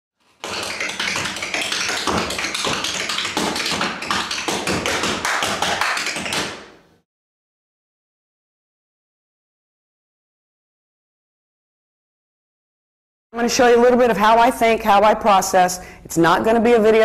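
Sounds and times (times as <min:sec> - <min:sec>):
tap shoes on hard floor: 0:00.3 - 0:06.8.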